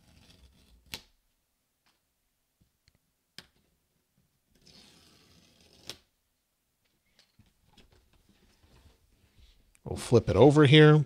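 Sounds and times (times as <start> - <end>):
paper tearing: 0.0 - 1.1, 4.5 - 6.1.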